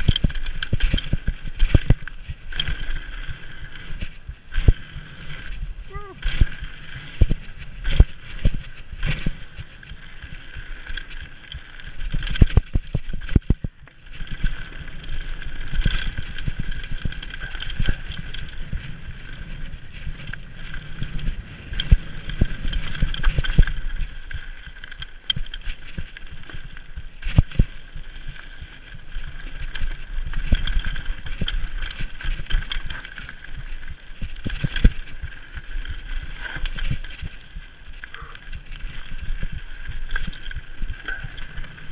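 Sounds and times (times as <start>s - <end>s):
bike knocks and rattles: 0.0s - 3.0s, 6.2s - 9.8s, 10.8s - 27.8s, 29.2s - 37.4s
wind rumble on microphone: 0.0s - 41.9s.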